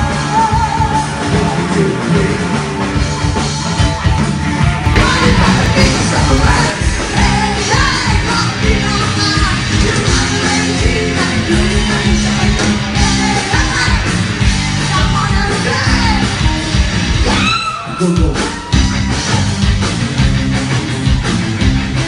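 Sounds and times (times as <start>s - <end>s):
bass guitar: 0.0s - 22.0s
drum kit steady beat: 0.0s - 22.0s
electric guitars: 0.0s - 22.0s
person singing: 4.9s - 14.2s.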